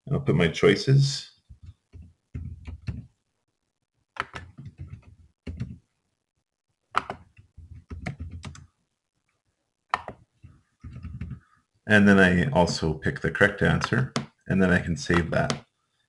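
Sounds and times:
computer keyboard typing: 4.2 - 5.8, 7.0 - 8.7, 9.9 - 10.2, 10.8 - 11.4.

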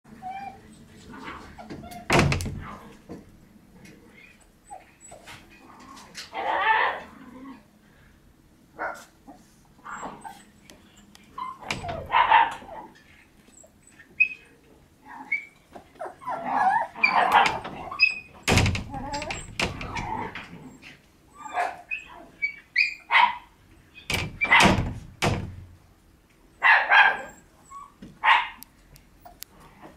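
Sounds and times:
puppies barking and yipping: 11.3 - 14.5, 15.2 - 18.4, 20.0 - 23.5, 26.6 - 28.6.

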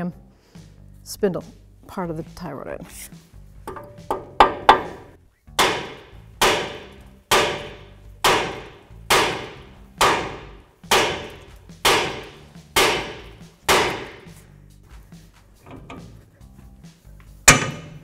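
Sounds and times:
hammer striking metal: 3.7 - 14.4, 17.5 - 18.0.

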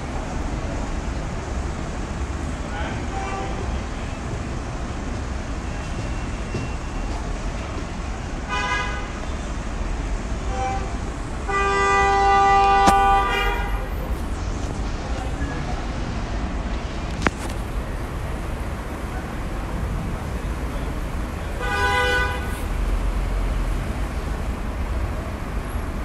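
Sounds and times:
horn blasts: 10.5 - 14.2, 21.6 - 23.0
steady low rumble: 12.6 - 21.7
sharp click: 12.8 - 13.2.

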